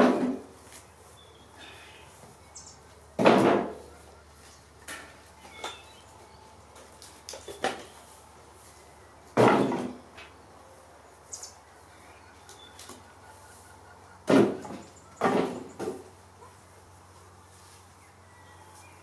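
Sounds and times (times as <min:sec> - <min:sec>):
logs landing in wheelbarrow: 0:00.0 - 0:00.5, 0:03.2 - 0:03.8, 0:09.4 - 0:10.3.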